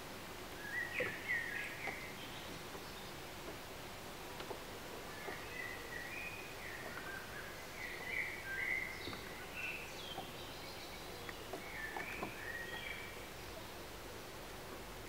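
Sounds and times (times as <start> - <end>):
faint steady hiss: 0.0 - 15.0
songbirds chirping: 0.0 - 15.0.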